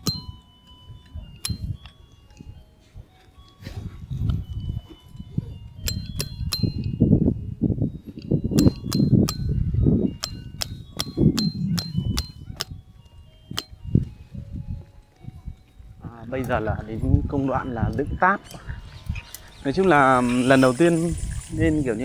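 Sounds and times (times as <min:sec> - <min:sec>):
hammer clanking on metal stakes: 0:05.8 - 0:06.9, 0:08.6 - 0:09.6, 0:10.2 - 0:12.7, 0:13.5 - 0:13.7.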